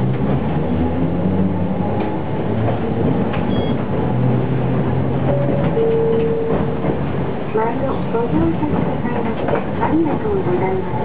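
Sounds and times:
tram traction motors growling: 0:00.0 - 0:11.0.

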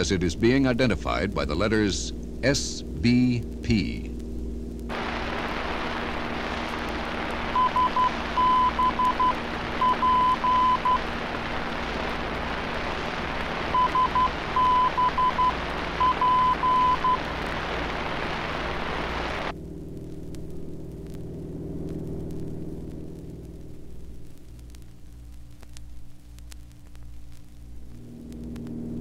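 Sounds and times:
radio static hiss: 0:00.0 - 0:29.0
morse code beeping tone: 0:07.6 - 0:11.0, 0:13.7 - 0:17.2.

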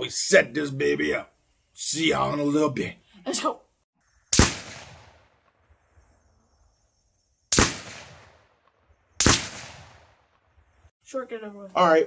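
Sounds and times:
rifle shots echoing: 0:04.3 - 0:05.6, 0:07.5 - 0:10.5.

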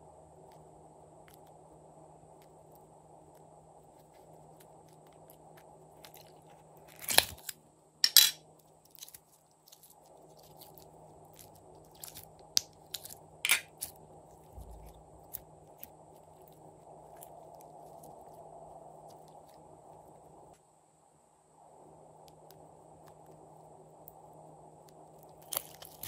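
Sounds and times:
slime sticky pops and crackles: 0:25.3 - 0:26.0.

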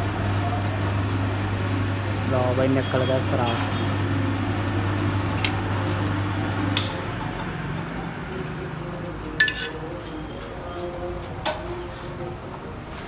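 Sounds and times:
drill press motor humming: 0:00.0 - 0:09.0.

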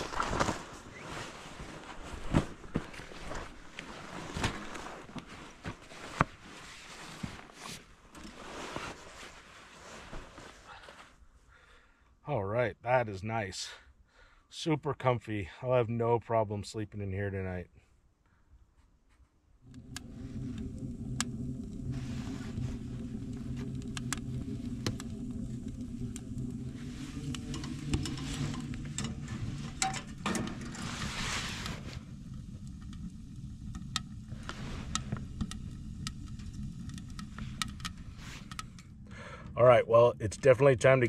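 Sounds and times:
wood fire crackling and popping: 0:00.0 - 0:06.5, 0:19.6 - 0:39.4
stove low rumble: 0:19.6 - 0:41.0.

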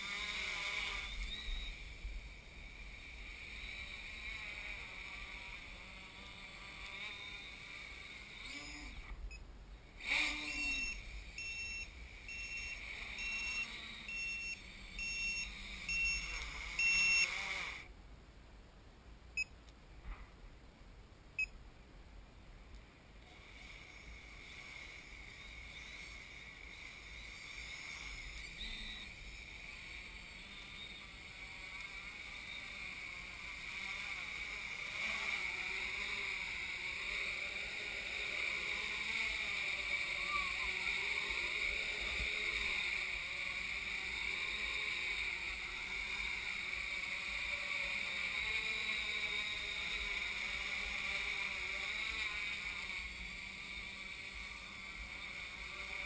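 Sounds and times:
drone motors whining: 0:00.0 - 0:17.9, 0:23.2 - 0:56.0
electronic beeps: 0:10.4 - 0:17.4.

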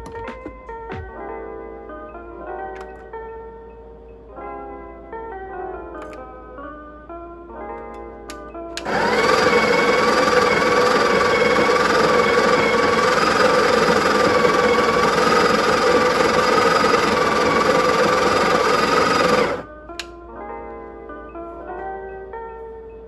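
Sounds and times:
coffee grinder grinding beans: 0:08.8 - 0:19.7.

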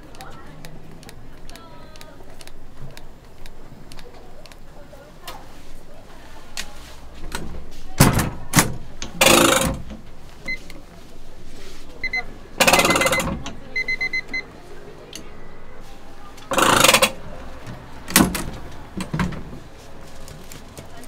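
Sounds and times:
short electronic beeps: 0:12.0 - 0:14.5.

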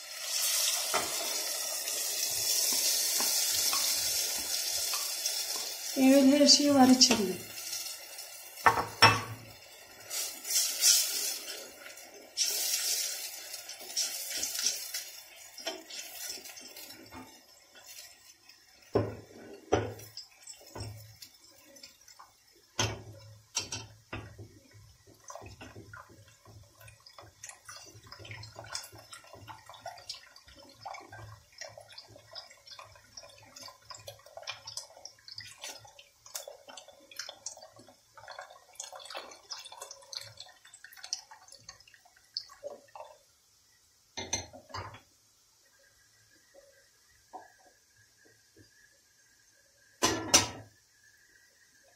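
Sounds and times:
wooden spoon stirring in pot: 0:13.7 - 0:43.2.

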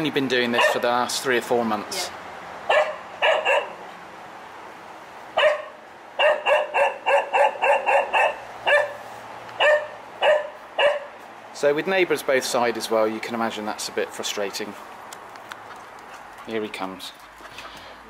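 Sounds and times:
dog barking: 0:00.5 - 0:00.9, 0:02.7 - 0:03.8, 0:05.4 - 0:09.0, 0:09.6 - 0:11.2.

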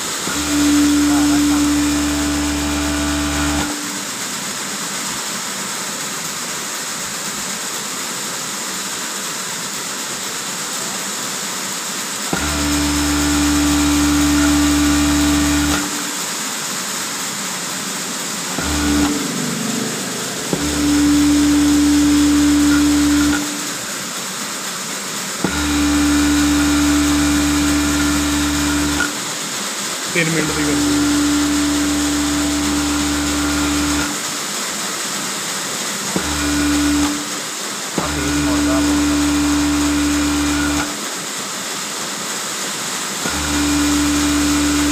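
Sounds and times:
sewing machine motor running: 0:00.0 - 0:03.9, 0:12.3 - 0:16.2, 0:18.5 - 0:23.9, 0:25.4 - 0:29.4, 0:30.1 - 0:34.4, 0:36.1 - 0:41.0, 0:43.2 - 0:44.9
constant machine hiss: 0:00.0 - 0:44.9.

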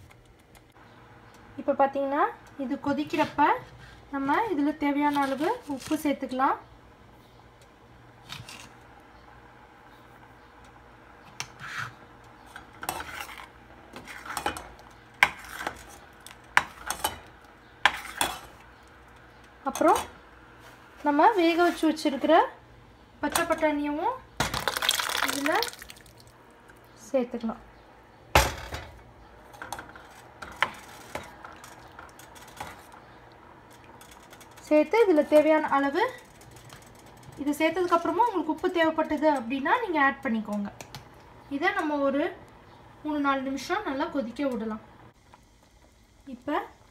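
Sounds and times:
metal spoon stirring in saucepan: 0:11.4 - 0:19.0.

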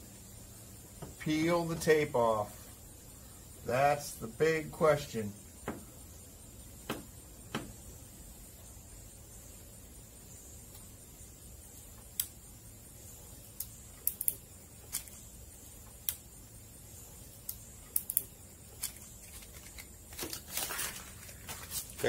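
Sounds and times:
faint steady hiss: 0:00.0 - 0:22.0
tape peeling off vinyl: 0:18.8 - 0:22.0.

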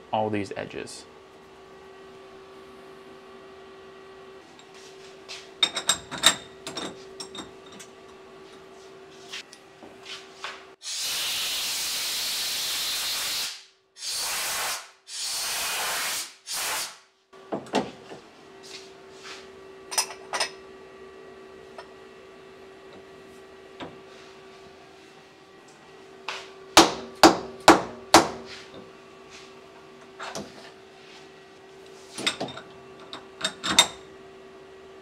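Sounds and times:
compressed air blasts: 0:10.8 - 0:17.1.

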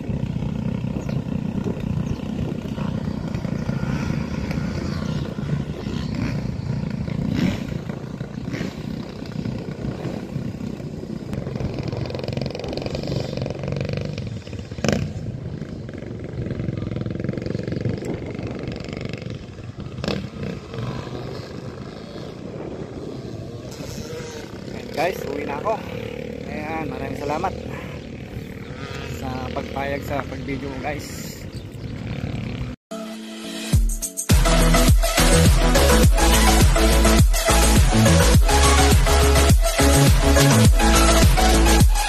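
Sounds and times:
distant dirt bike engines revving: 0:00.0 - 0:32.8, 0:34.4 - 0:42.0.

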